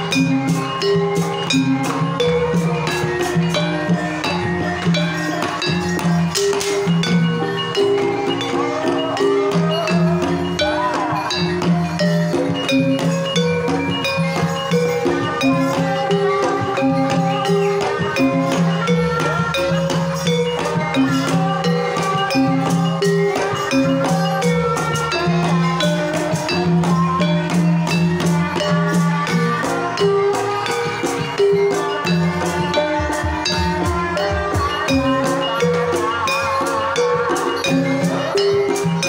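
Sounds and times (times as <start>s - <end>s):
hand drums beating: 0.0s - 39.0s
ringing metallophone notes: 0.0s - 39.0s
woman singing through microphone: 7.4s - 12.4s, 15.0s - 39.0s.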